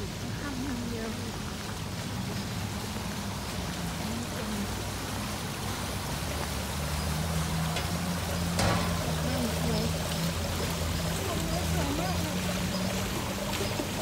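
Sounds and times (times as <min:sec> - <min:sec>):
fountain water splashing: 0:00.0 - 0:14.0.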